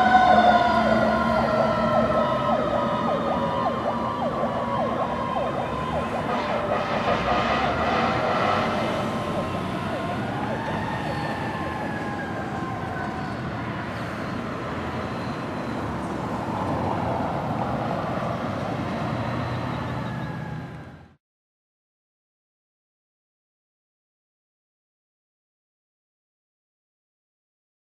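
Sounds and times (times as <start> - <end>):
fire engine sirens wailing: 0.0 - 21.2.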